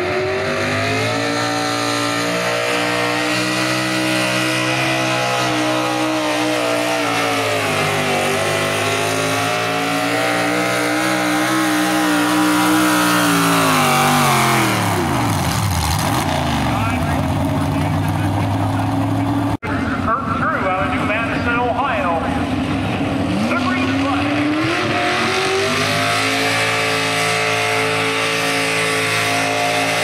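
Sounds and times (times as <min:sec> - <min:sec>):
tractor engine at high revs: 0:00.0 - 0:30.0.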